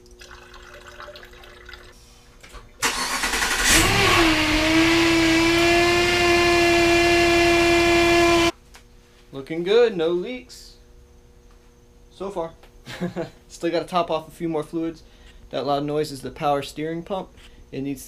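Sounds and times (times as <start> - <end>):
water trickling being poured: 0.0 - 2.0
car engine starting and running: 2.8 - 8.5
power steering pump whine: 2.8 - 8.6.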